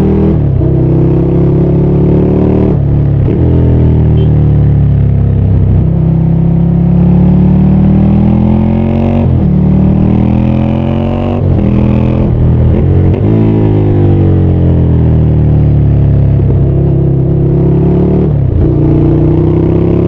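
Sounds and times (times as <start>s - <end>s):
motorcycle engine revving: 0.0s - 20.0s.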